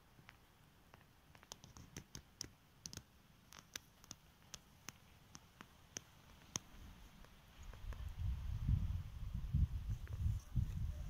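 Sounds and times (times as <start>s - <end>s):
faint sharp clicks: 0.2s - 8.1s.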